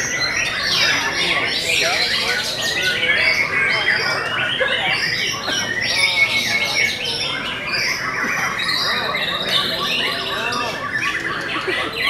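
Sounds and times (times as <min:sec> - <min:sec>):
birds singing whistles and trills: 0:00.0 - 0:12.0.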